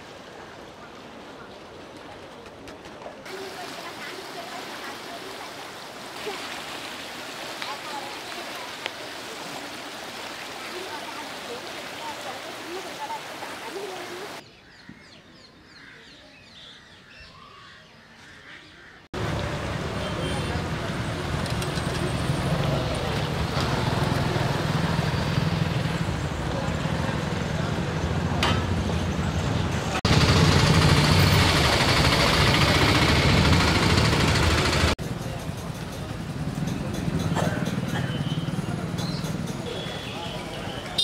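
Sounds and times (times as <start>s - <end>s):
rushing river water: 0.0s - 14.4s, 19.2s - 35.0s
lorry engine running: 19.2s - 39.6s
auto-rickshaw engine running: 19.2s - 40.0s
birds chirping: 37.3s - 41.0s.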